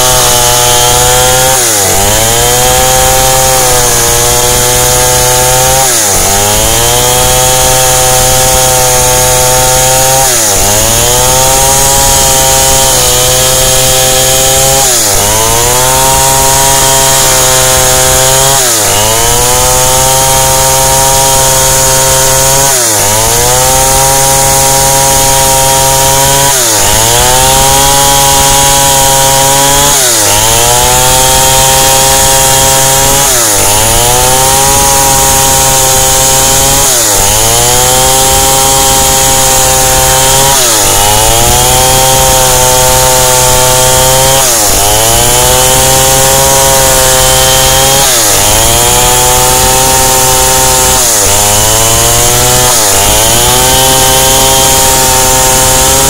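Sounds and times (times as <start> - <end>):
chainsaw cutting a log: 0.0 - 56.0.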